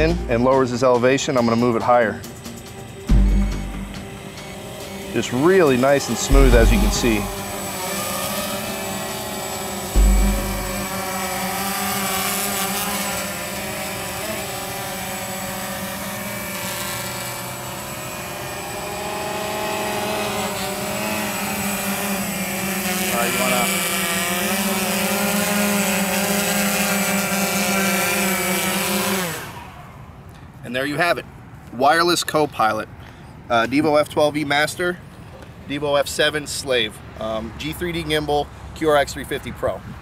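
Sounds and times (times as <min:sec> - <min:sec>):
quadcopter motors buzzing: 0:01.3 - 0:30.3
low thump: 0:06.3 - 0:07.4, 0:10.0 - 0:10.9.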